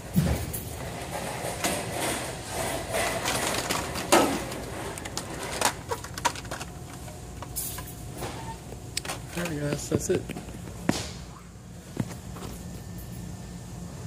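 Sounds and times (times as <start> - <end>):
plastic packs clacking and rustling: 0.2 - 8.4, 9.0 - 10.3.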